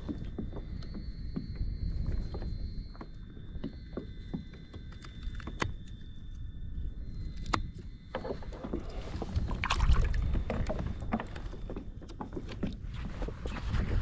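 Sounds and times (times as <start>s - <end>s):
low wind rumble on microphone: 0.0s - 14.0s
water splashing and dripping: 8.7s - 11.4s.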